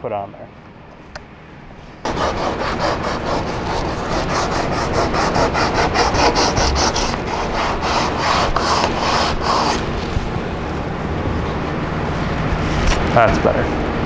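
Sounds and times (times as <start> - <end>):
sandpaper sanding by hand: 2.1 - 10.1.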